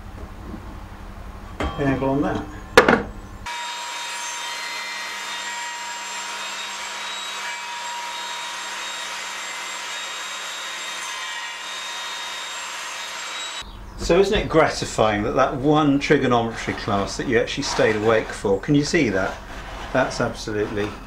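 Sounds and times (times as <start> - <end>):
table saw cutting plywood: 3.5 - 13.6, 15.7 - 21.0.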